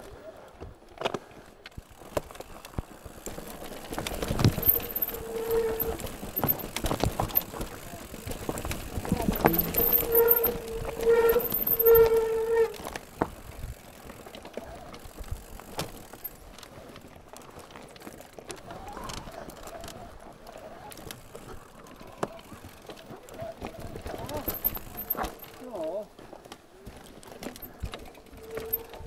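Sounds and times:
bike tyres rolling: 0:00.0 - 0:29.0
bike knocking: 0:01.8 - 0:14.2, 0:24.0 - 0:25.5
bike squealing: 0:03.3 - 0:13.2, 0:24.2 - 0:25.7, 0:28.3 - 0:29.0.

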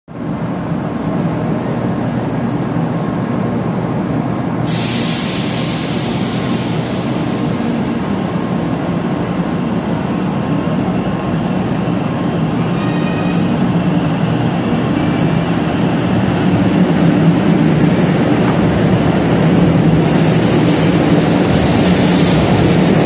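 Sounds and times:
train running noise: 0:00.1 - 0:23.0
hiss: 0:04.7 - 0:07.8.

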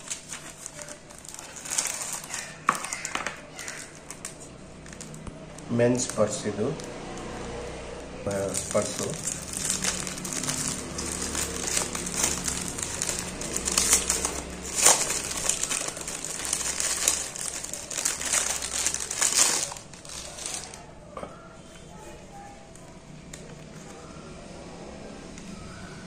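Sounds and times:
plastic wrapper crinkling: 0:00.0 - 0:07.3, 0:08.3 - 0:21.0.

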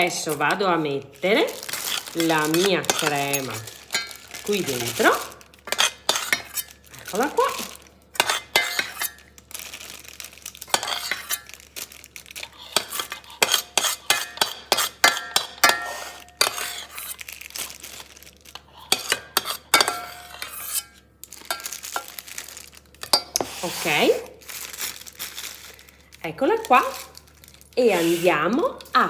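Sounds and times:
metal spoon scraping steel pot: 0:01.9 - 0:05.0, 0:05.7 - 0:06.7, 0:10.7 - 0:11.5, 0:12.7 - 0:17.1, 0:18.9 - 0:21.6.

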